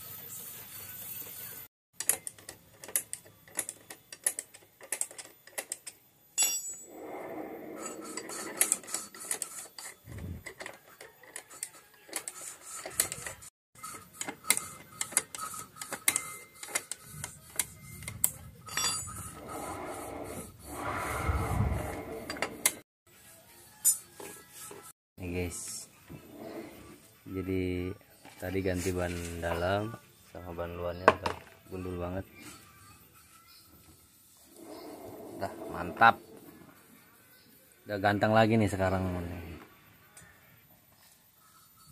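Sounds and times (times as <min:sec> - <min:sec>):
metal hand tools clinking: 0:06.4 - 0:06.9, 0:18.2 - 0:19.3.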